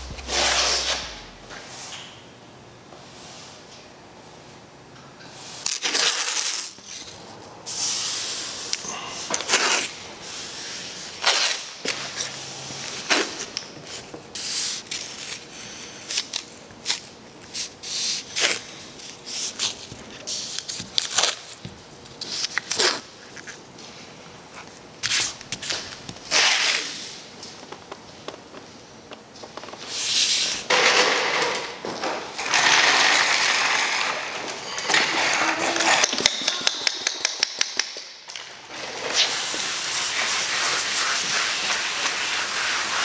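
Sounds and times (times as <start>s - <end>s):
masking tape ripping off roll: 5.6s - 6.8s.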